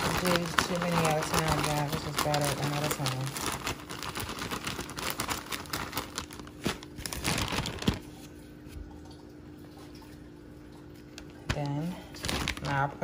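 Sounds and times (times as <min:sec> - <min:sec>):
plastic bag crinkling and rustling: 0:00.0 - 0:08.4, 0:11.2 - 0:13.0.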